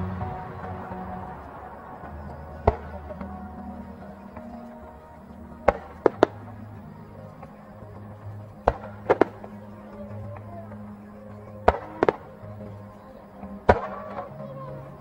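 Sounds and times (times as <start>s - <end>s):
low music: 0.0s - 15.0s
firework bangs: 0.2s - 5.0s, 5.6s - 6.6s, 8.6s - 9.6s, 11.6s - 12.4s, 13.7s - 14.3s.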